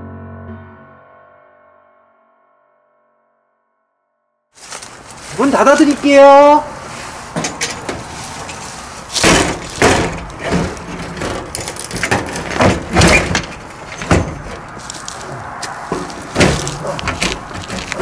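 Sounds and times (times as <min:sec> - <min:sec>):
scuffing footsteps: 0:04.6 - 0:11.4, 0:13.6 - 0:18.0
door banging shut: 0:07.4 - 0:14.7, 0:15.9 - 0:17.9
door knocks and rattles: 0:09.2 - 0:14.7.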